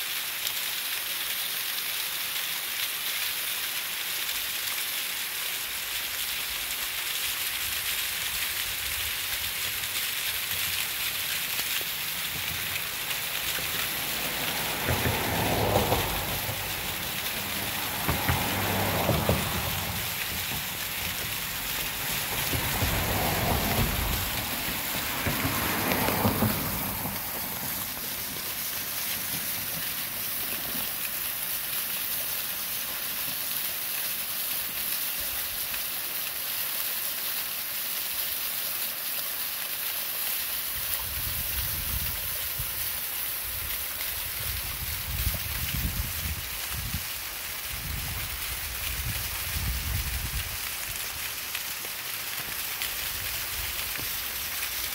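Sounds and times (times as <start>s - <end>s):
waterfall splashing: 0.0s - 54.9s
low water rumble: 10.6s - 33.2s.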